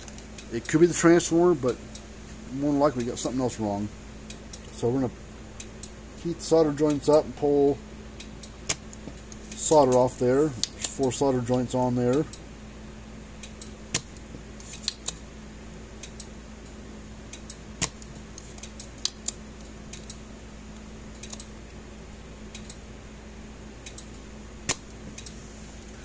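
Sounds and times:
steady low hum: 0.0s - 26.0s
desoldering pump clicks: 2.9s - 3.4s, 5.6s - 12.5s, 13.4s - 15.2s, 16.0s - 21.5s, 22.5s - 22.8s, 23.8s - 25.4s.

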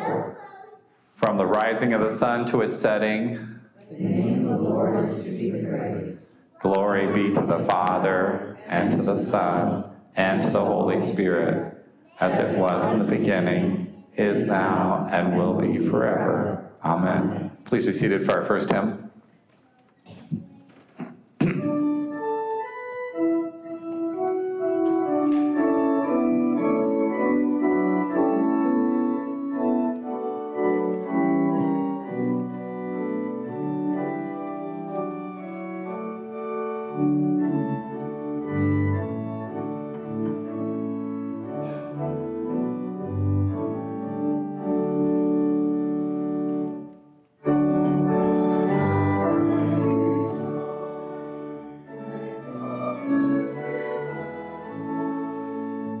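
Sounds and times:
pipe organ playing a hymn: 1.2s - 3.6s, 6.6s - 19.1s, 21.6s - 56.0s.

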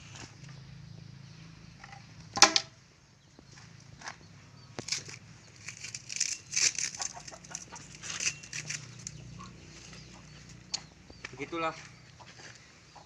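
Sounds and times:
chickens clucking: 6.8s - 13.0s.

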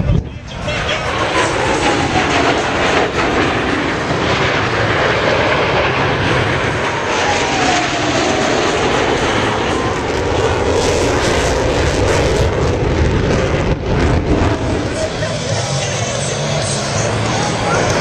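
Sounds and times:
jet engines rushing: 0.0s - 18.0s
jet whine dropping in pitch: 0.0s - 18.0s.

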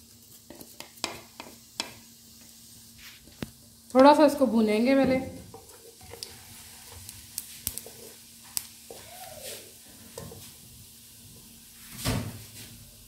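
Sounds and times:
seeds sizzling in hot oil: 0.0s - 13.0s
wooden spatula scraping a pan: 4.9s - 10.7s.

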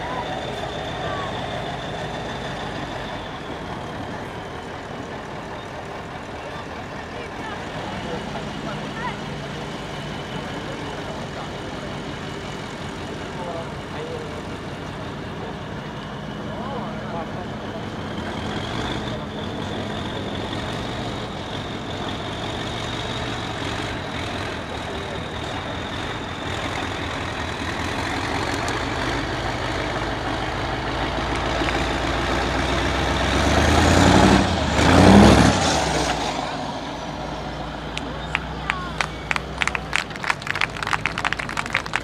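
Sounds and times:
diesel truck engine under load: 0.0s - 42.0s
engine revving hard: 31.9s - 37.2s.

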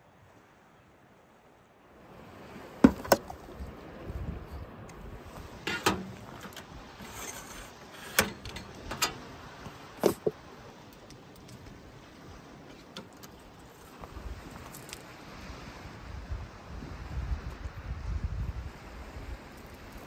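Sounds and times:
metal pole clicks and knocks: 5.6s - 9.3s.

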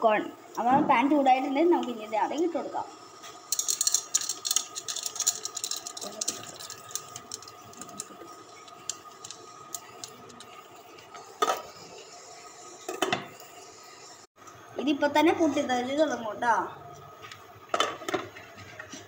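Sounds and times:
induction cooktop whine: 0.0s - 19.0s
popcorn kernels pattering in pan: 3.2s - 11.8s.

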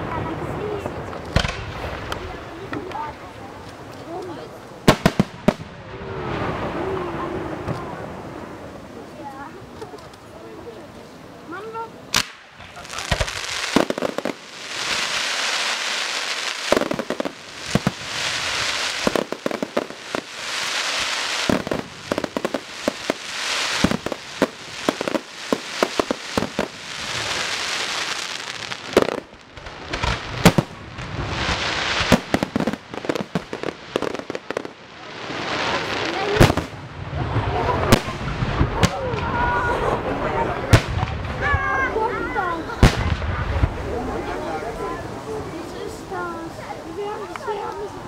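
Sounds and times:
fireworks crackling: 0.0s - 48.0s.

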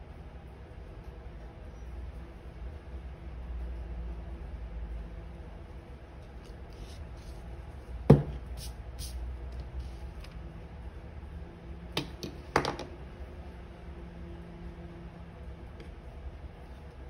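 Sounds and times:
tool knocking on cutting mat: 8.1s - 8.4s.

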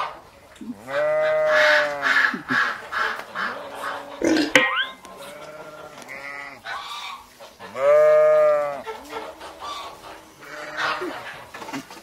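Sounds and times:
goat-like bleating: 7.8s - 8.8s.

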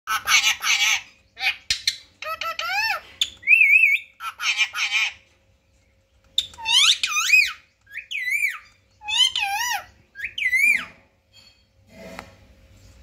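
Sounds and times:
parakeet warbling calls: 0.1s - 5.2s, 6.4s - 11.0s.

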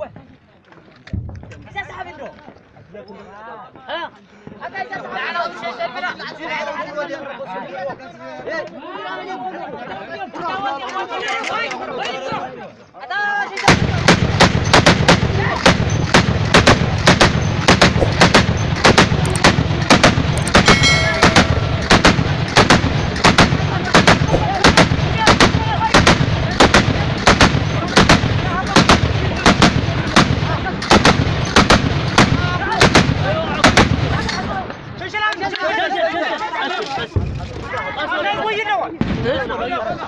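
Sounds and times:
heavy machine gun firing: 14.0s - 34.0s.

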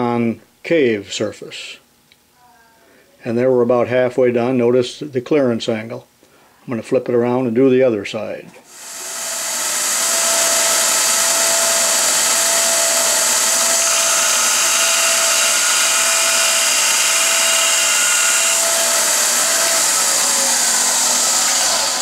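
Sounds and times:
belt sander grinding metal: 8.7s - 22.0s.

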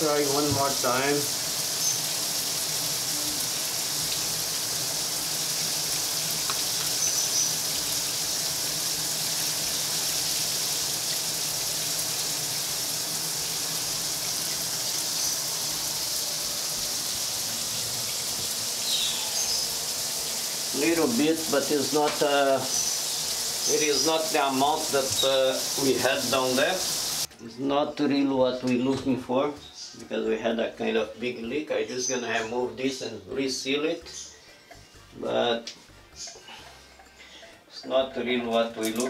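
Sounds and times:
shower water splashing on tiles: 0.0s - 27.3s.

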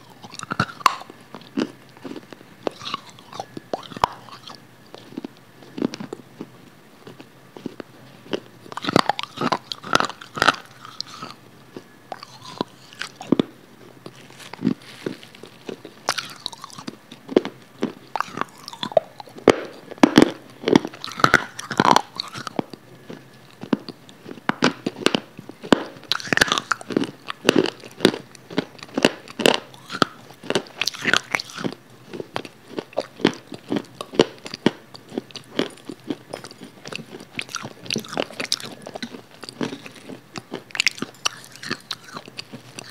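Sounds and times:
mouth clicks and smacks: 0.0s - 6.2s
person chewing and eating: 0.0s - 42.9s.

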